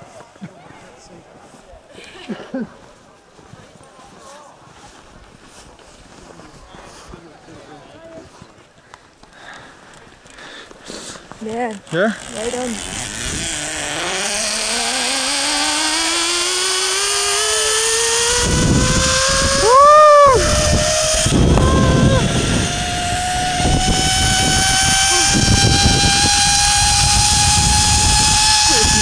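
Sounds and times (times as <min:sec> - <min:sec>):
zipline pulleys whining: 0:11.4 - 0:29.0
wind on microphone: 0:12.6 - 0:14.8, 0:18.1 - 0:29.0
person yelling: 0:19.6 - 0:22.4.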